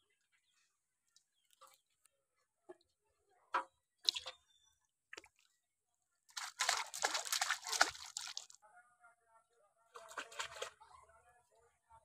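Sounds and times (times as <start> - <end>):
wet slaps and splashes: 6.3 - 8.5
fish flapping in water: 6.3 - 8.6.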